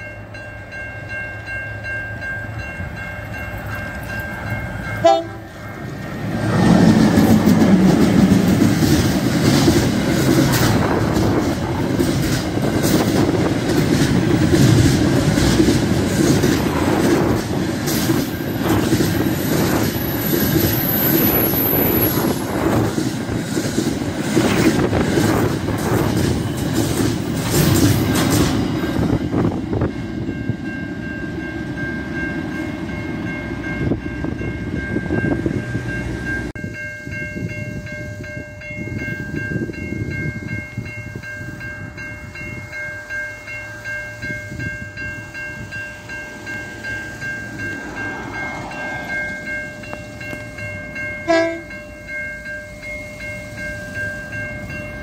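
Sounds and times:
level crossing bells ringing: 0:00.0 - 0:05.7, 0:29.8 - 0:55.0
train rumble: 0:00.0 - 0:55.0
wheels clacking over rail joints: 0:03.3 - 0:29.8.

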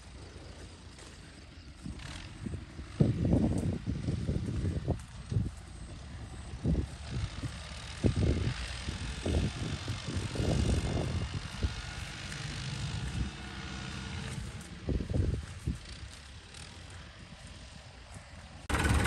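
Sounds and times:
distant tractor diesel engine: 0:00.0 - 0:19.0
low rumbling gusts: 0:01.7 - 0:15.8.

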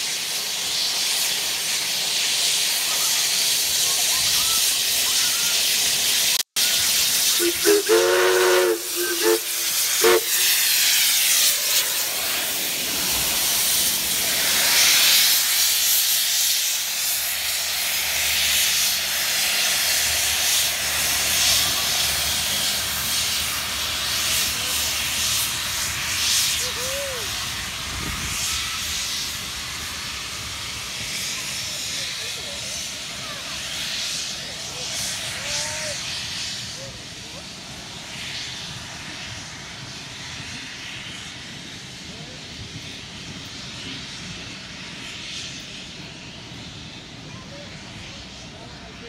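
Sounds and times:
steam hissing from safety valve: 0:00.0 - 0:48.5
steam whistle: 0:07.3 - 0:11.0.

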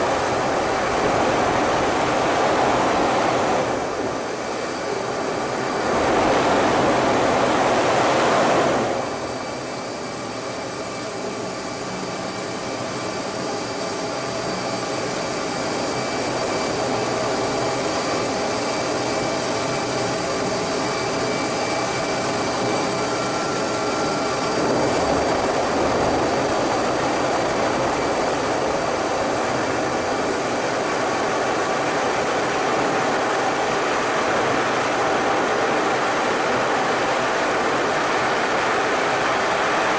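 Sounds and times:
rush of airflow: 0:00.0 - 0:09.4
faint steady whines: 0:00.0 - 0:39.9
jet engine noise: 0:00.0 - 0:39.9.

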